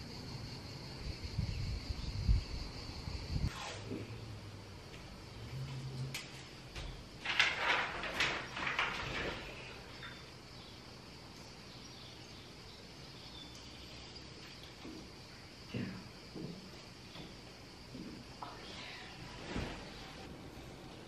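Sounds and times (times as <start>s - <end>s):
paper and bedclothes rustling: 7.2s - 9.9s, 19.2s - 20.3s.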